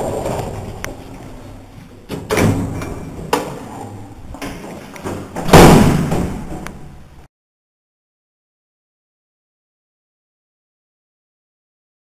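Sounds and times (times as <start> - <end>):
lift door banging shut: 2.1 - 3.6, 4.4 - 6.9
metal thuds and clanks: 2.1 - 6.8.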